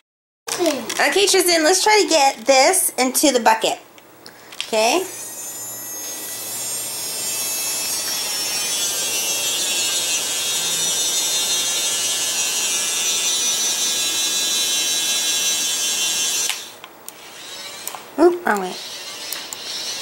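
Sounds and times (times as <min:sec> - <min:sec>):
toy winch motor whining: 0:04.8 - 0:20.0.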